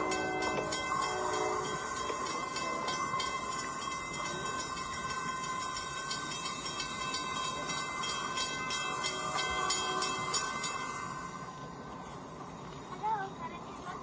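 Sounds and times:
wheels clicking over track joints: 0.0 - 10.8.

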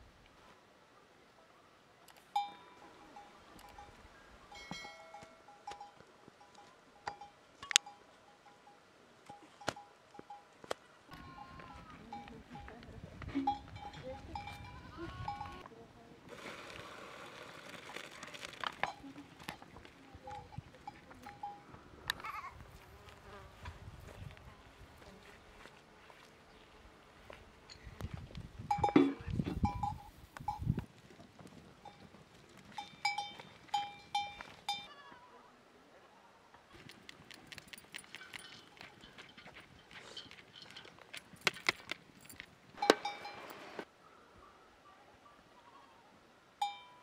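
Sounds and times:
livestock bleating: 11.1 - 12.3, 14.4 - 15.7, 22.1 - 22.6, 34.9 - 35.6.

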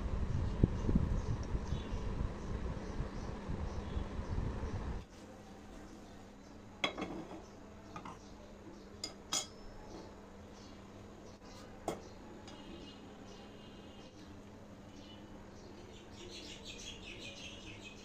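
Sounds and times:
metal clinks of cookware: 9.0 - 9.7.

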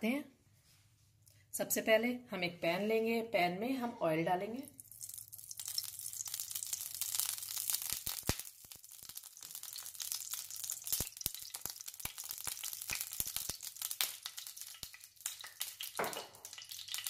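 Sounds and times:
oil crackling and popping: 4.7 - 17.0
oil hissing in frying pan: 5.2 - 17.0.

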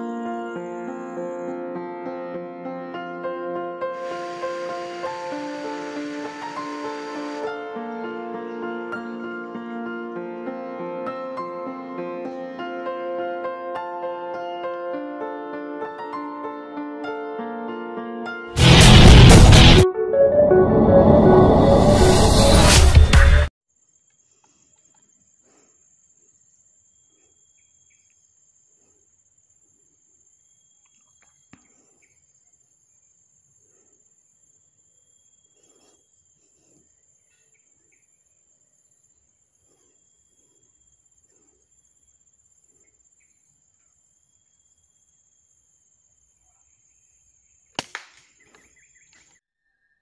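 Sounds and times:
insects droning: 3.8 - 14.5, 23.7 - 49.0
high-pitched insect drone: 3.9 - 9.4.

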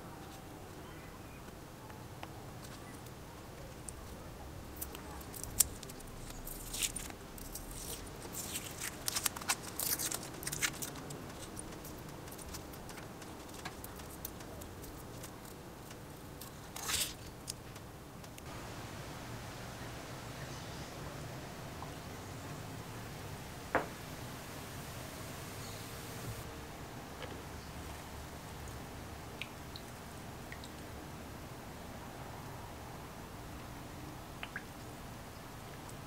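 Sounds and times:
masking tape peeling and crumpling: 4.8 - 18.4
tape rustling: 4.8 - 18.5.

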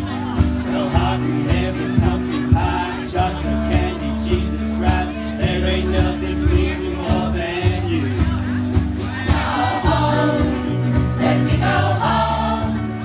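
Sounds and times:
low bass line: 0.0 - 13.0
steady beat: 0.3 - 12.9
mixed choir singing harmonies: 9.0 - 13.0.

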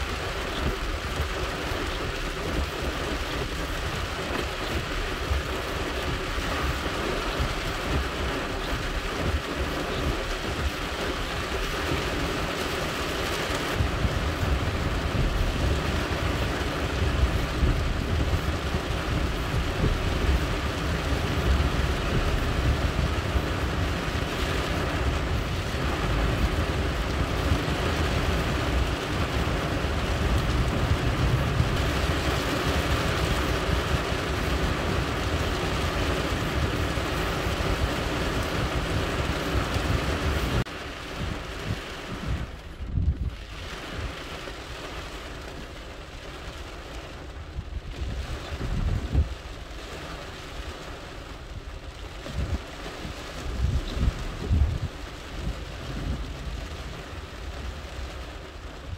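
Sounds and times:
heavy rain on a car roof: 0.0 - 58.9
deep low rumble: 42.5 - 43.4.

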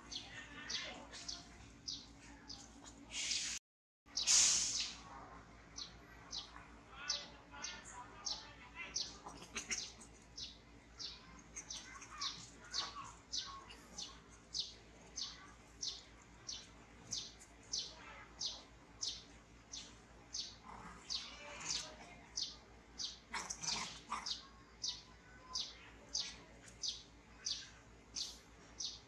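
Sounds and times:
bird chirping: 5.8 - 29.0.

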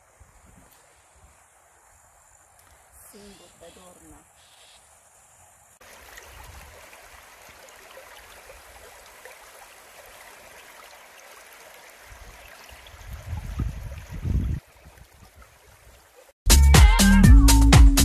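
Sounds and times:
river babbling over stones: 5.8 - 13.3.

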